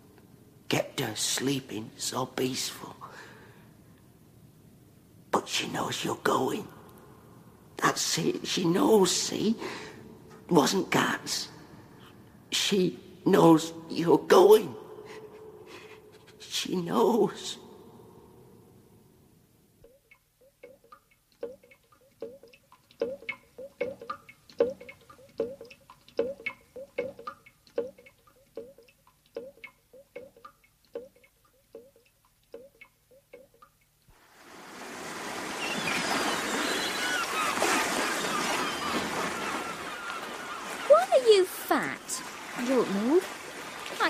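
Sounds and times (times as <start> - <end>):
irregular knocks and taps: 19.8 - 33.9
rushing water: 34.1 - 44.0.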